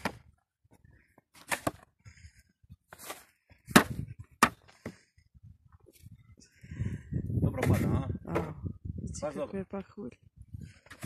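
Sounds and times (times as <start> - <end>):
snow shovel scraping stone steps: 1.3 - 1.8, 2.9 - 5.0.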